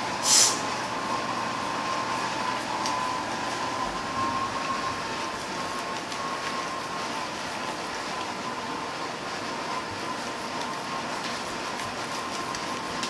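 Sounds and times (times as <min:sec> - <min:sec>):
short hiss: 0:00.2 - 0:00.7.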